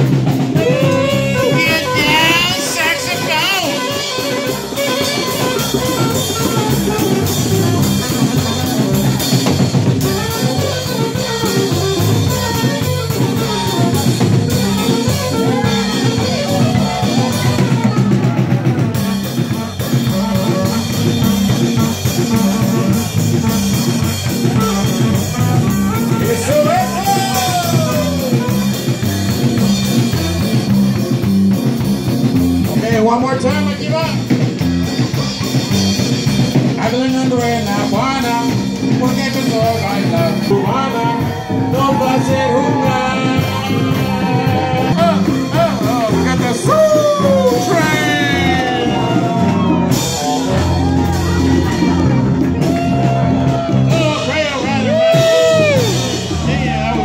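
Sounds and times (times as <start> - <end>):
saxophone: 0.0 - 32.8, 38.0 - 57.0
drum kit: 0.0 - 57.0
electric bass: 0.0 - 57.0
person singing: 0.6 - 19.2, 36.8 - 57.0.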